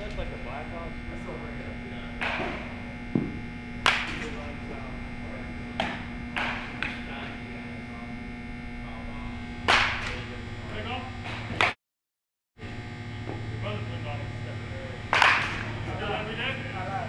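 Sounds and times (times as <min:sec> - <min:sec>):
steady low hum: 0:00.0 - 0:11.8, 0:12.6 - 0:17.0
baseball bat striking balls: 0:02.1 - 0:04.5, 0:05.7 - 0:07.1, 0:09.6 - 0:10.2, 0:15.1 - 0:15.8.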